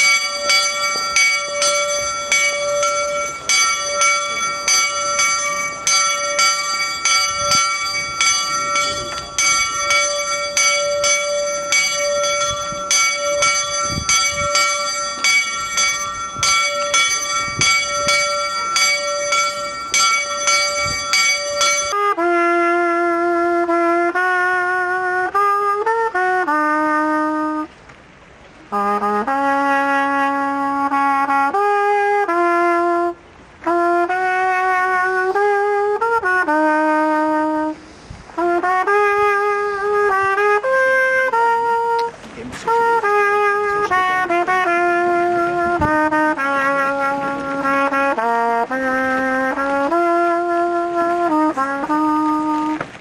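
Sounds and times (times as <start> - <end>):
church bell tolling: 0.0 - 22.0, 42.7 - 48.8
solo trumpet slow melody: 0.0 - 27.8, 28.6 - 53.0.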